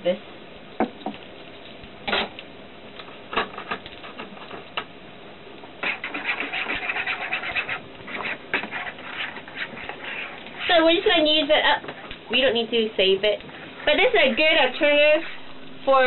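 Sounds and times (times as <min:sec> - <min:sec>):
utensil scraping in a bowl: 0:05.8 - 0:12.2, 0:13.3 - 0:16.0.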